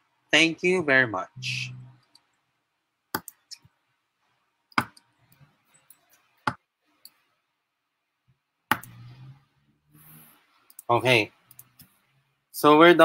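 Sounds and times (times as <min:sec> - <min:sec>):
computer mouse clicks: 0:03.1 - 0:03.6, 0:08.7 - 0:09.3, 0:10.6 - 0:12.0.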